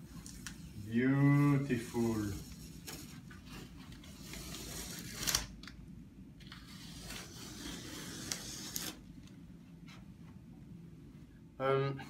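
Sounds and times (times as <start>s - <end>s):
tape peeling and rustling: 0.0s - 5.8s, 6.4s - 9.4s
tape ripping: 4.2s - 5.6s, 6.5s - 9.0s.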